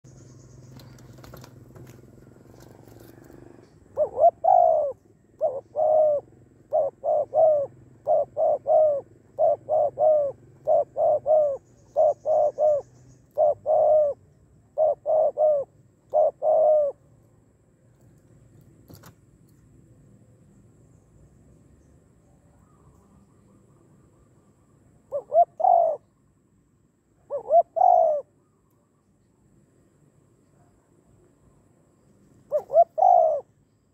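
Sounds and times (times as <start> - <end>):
dove cooing: 0.8 - 17.1, 25.1 - 26.0, 27.2 - 28.4, 32.5 - 33.5.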